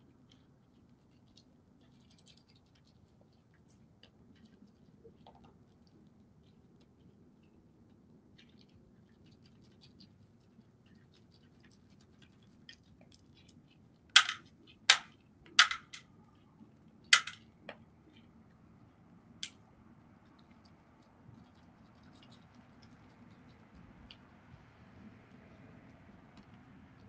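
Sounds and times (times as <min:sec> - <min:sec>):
deer crunching food: 0:00.2 - 0:19.6.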